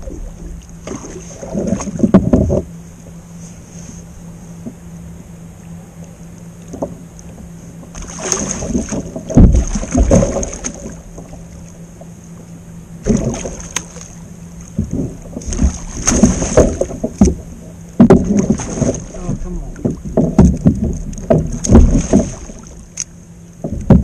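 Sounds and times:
water splashing and sloshing: 0.0 - 24.0
dull thuds on kayak hull: 0.8 - 2.7, 7.9 - 11.4, 14.7 - 17.4, 18.0 - 22.7, 23.6 - 24.0.

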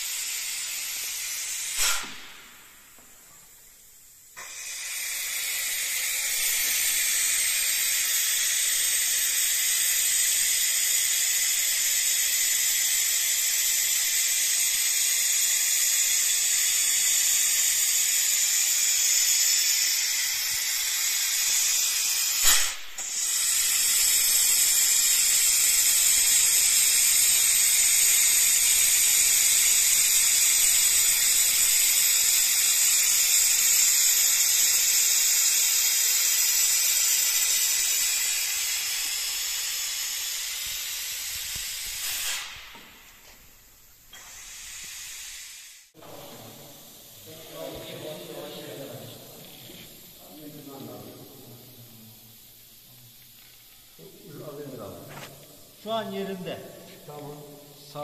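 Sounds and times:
air tool hissing: 0.0 - 58.0
air tool click: 0.2 - 3.5, 4.4 - 43.5, 44.1 - 47.1.

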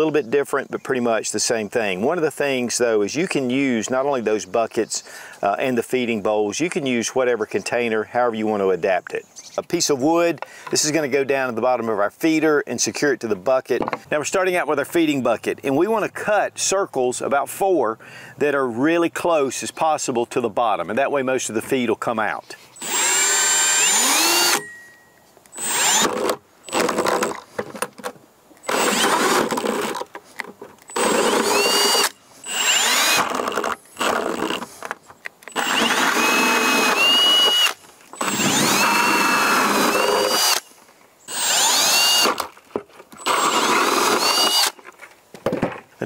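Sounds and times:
drill hole saw cutting plastic: 22.8 - 24.7, 25.5 - 27.4, 28.6 - 30.1, 30.9 - 34.7, 35.5 - 40.7, 41.3 - 42.5, 43.2 - 44.8
drill motor whine: 22.8 - 24.8, 25.6 - 27.3, 28.6 - 30.0, 30.9 - 34.6, 35.5 - 40.6, 41.3 - 42.4, 43.2 - 44.8.

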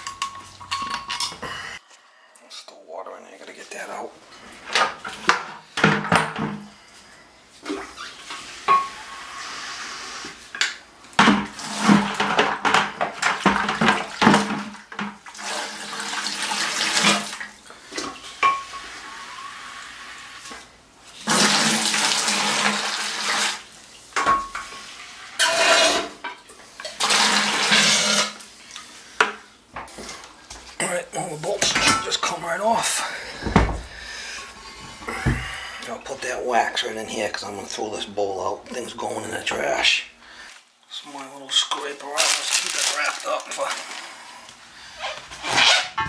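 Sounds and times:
water gushing into plastic bucket: 21.2 - 23.6.

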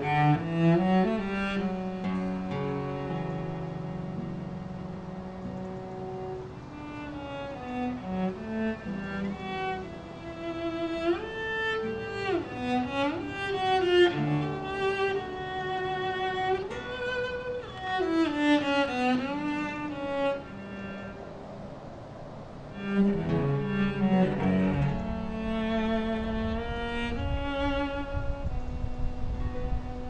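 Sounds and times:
plucked guitar accompaniment: 0.0 - 21.7, 22.6 - 30.0
bowed cello melody: 0.0 - 30.0.

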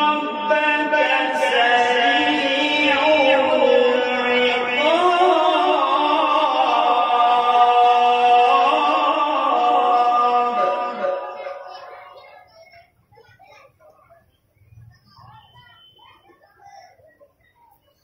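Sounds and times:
man reciting melodically: 0.0 - 12.3.

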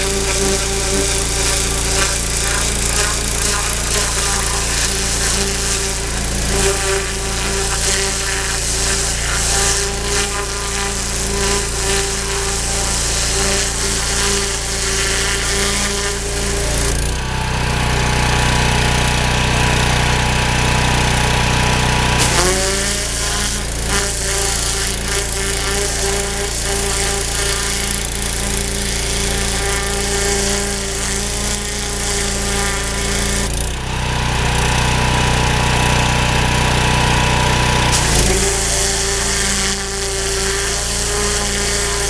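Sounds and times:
pressure washer machine drone: 0.0 - 42.0
water jet hissing: 37.9 - 42.0.

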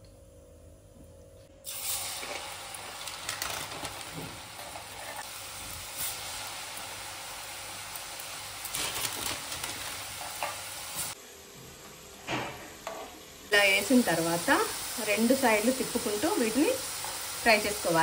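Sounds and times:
dough sizzling in hot oil: 1.6 - 11.2, 13.5 - 18.0
oil crackling: 1.7 - 5.3, 7.9 - 10.2.

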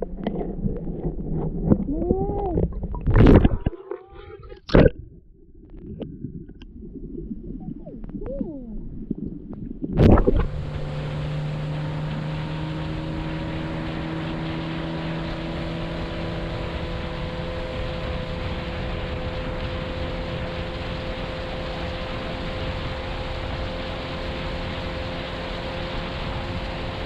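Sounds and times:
boat motor humming: 0.0 - 27.0
muffled underwater water noise: 0.0 - 27.0
loud splash: 9.8 - 16.8.

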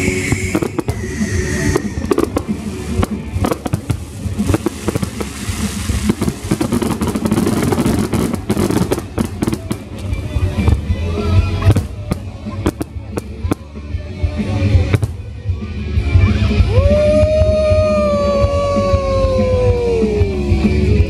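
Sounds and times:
fireworks bursting: 0.0 - 15.5.

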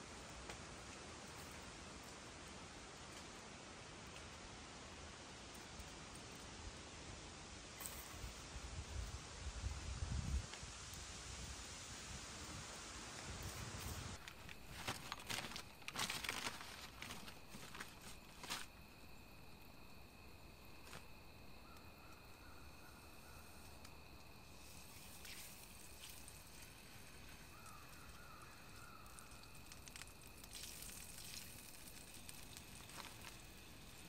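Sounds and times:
faint wavering high calls: 21.6 - 23.8, 27.3 - 29.8.

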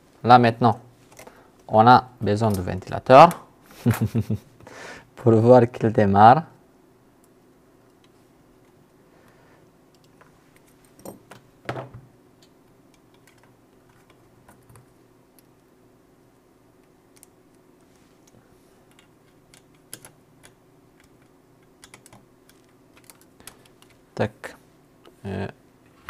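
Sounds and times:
faint steady hum: 0.0 - 26.0
small parts clicking and tapping: 9.9 - 15.6, 16.8 - 17.6, 18.2 - 24.0.

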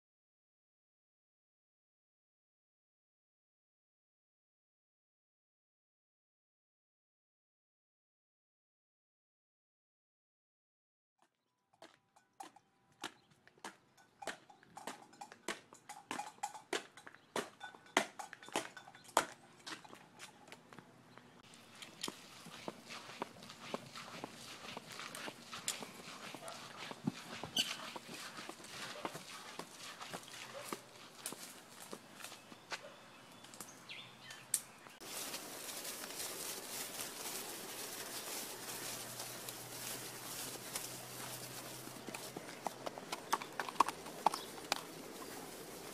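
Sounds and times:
horse hooves walking: 11.7 - 45.9
bird chirp: 32.1 - 35.0.

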